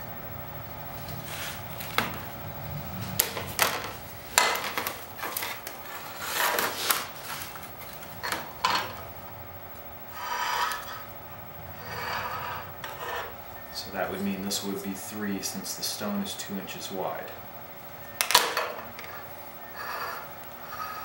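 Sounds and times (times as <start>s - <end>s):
marking line rubbing: 10.1s - 11.1s, 11.7s - 13.4s
short scrapes on metal: 10.1s - 11.1s, 11.7s - 13.4s.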